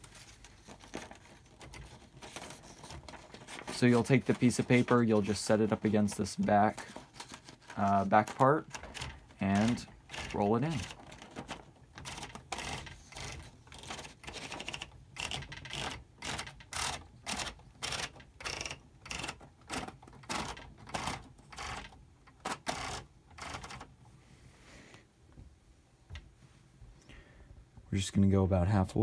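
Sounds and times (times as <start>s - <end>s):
typewriter roller clicking: 7.6s - 23.9s.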